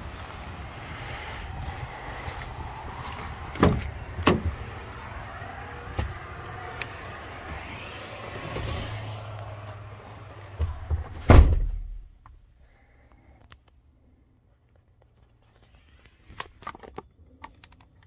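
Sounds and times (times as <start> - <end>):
truck engine hum: 0.0 - 12.6
loud thump: 10.6 - 12.0.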